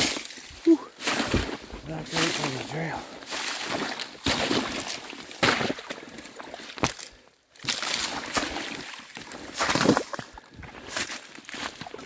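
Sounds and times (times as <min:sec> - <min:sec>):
footsteps crunching through slush: 0:00.0 - 0:12.0.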